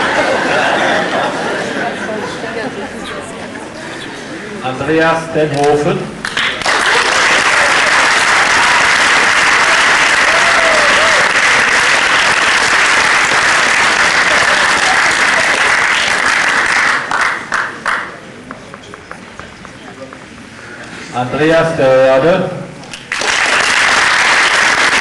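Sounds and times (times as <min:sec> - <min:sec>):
audience applauding: 0:06.2 - 0:18.2, 0:22.9 - 0:25.0.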